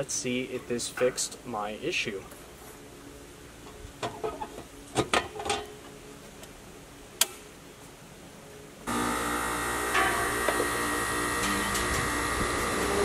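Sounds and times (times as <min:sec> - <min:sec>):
air conditioner condenser humming: 0:08.8 - 0:13.0.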